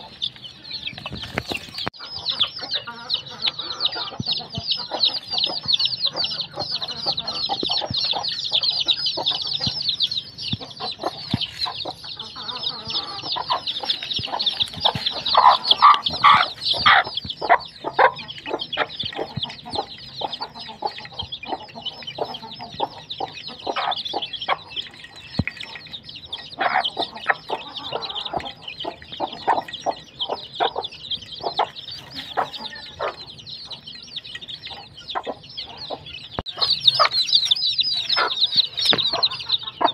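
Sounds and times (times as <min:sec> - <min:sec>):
chicks peeping: 0:00.0 - 0:39.9
hen clucking: 0:00.0 - 0:39.9
beaks tapping on metal bowl: 0:09.2 - 0:35.0.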